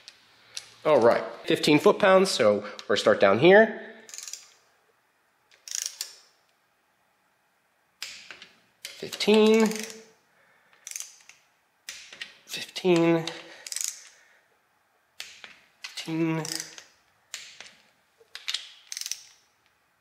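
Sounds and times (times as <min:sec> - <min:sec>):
torque wrench clicking: 0:04.1 - 0:04.6, 0:05.5 - 0:06.2, 0:08.0 - 0:10.1, 0:10.8 - 0:12.3, 0:13.6 - 0:14.2, 0:15.2 - 0:17.7, 0:18.4 - 0:19.4.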